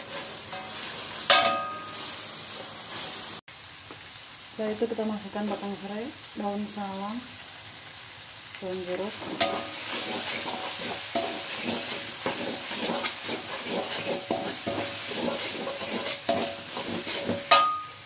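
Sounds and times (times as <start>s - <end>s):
metal clank on wok: 0.0s - 2.2s, 9.2s - 18.0s
metal spatula scraping wok: 0.0s - 3.4s, 9.1s - 18.0s
paste sizzling in oil: 0.0s - 18.0s.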